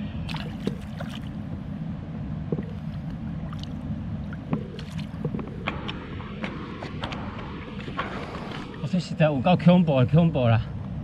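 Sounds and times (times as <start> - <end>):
stream water running: 0.0 - 1.8, 2.4 - 5.7.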